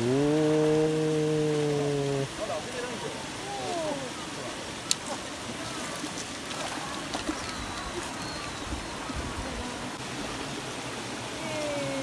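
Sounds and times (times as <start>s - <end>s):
fish splashing in water: 4.8s - 9.1s.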